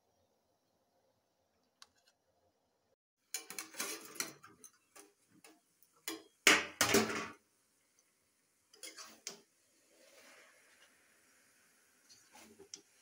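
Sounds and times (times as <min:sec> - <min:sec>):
spatula scraping metal pan: 0:08.7 - 0:11.0.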